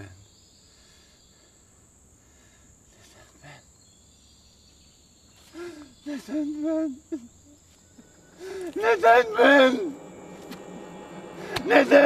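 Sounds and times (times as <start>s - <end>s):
insect drone: 0.0s - 12.0s
man's voice: 8.4s - 12.0s
brief soft sound: 9.4s - 12.0s.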